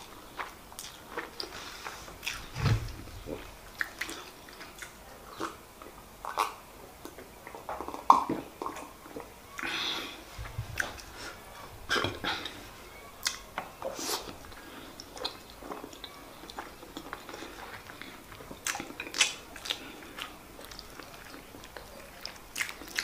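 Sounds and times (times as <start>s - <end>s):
chewing and mouth smacks: 0.0s - 1.6s, 3.2s - 9.7s, 14.2s - 23.0s.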